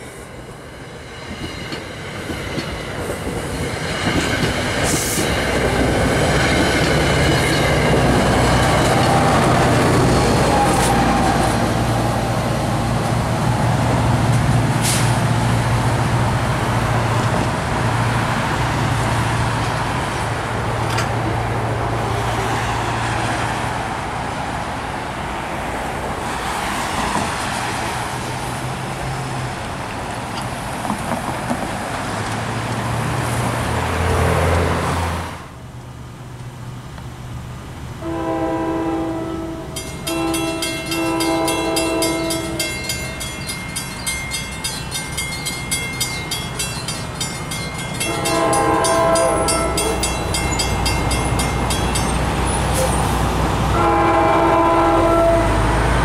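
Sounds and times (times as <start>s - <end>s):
engine and traffic rumble: 0.0s - 56.0s
crossing bells ringing: 5.3s - 10.6s, 39.6s - 52.9s
train air horn blasts: 38.0s - 42.7s, 48.0s - 50.0s, 53.7s - 55.9s.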